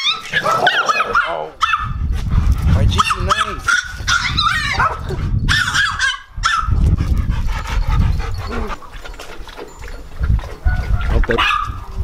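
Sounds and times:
dog barking high-pitched: 0.0 - 2.0, 3.0 - 6.8, 10.7 - 11.8
low rumbling on microphone: 1.6 - 9.1, 9.8 - 12.0.

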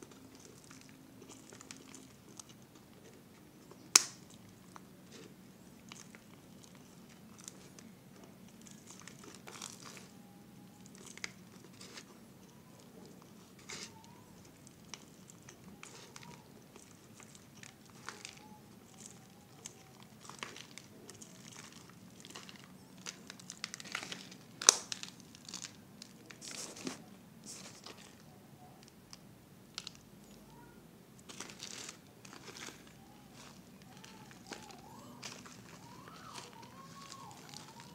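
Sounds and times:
sharp crack of plastic bottle: 3.9 - 4.2
plastic bottle crinkling: 13.2 - 28.2, 31.2 - 37.9.

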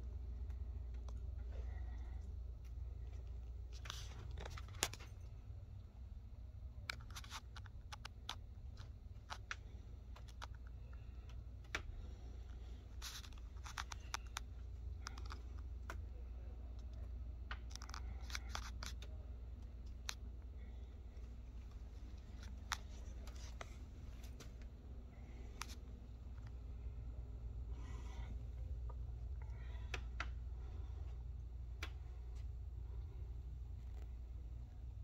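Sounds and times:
steady low hum: 0.0 - 35.0
light irregular clicks: 6.8 - 27.1.

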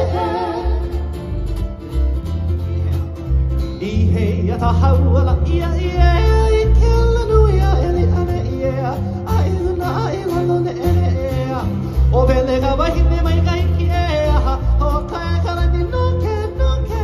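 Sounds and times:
person singing: 0.0 - 1.1
deep bass notes: 0.0 - 17.0
strummed ukulele and guitar: 0.0 - 17.0.

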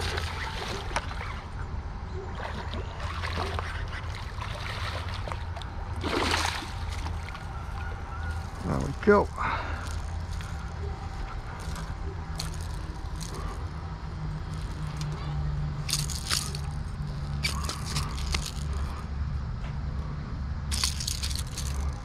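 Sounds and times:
rustling and crackling in grass: 4.2 - 15.2.

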